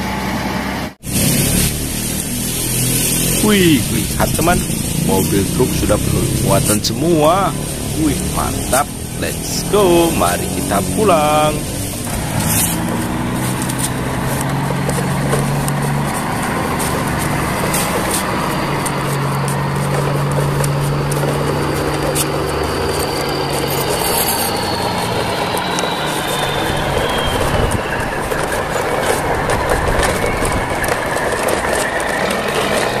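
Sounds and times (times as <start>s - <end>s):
toy trucks rattling over stone: 7.3s - 33.0s.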